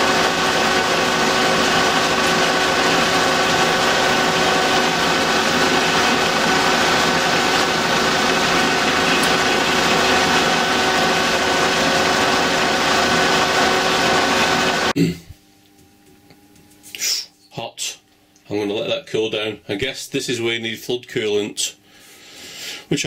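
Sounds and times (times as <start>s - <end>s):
lathe gear whine: 0.0s - 14.9s
metal lathe cutting steel: 0.0s - 14.9s.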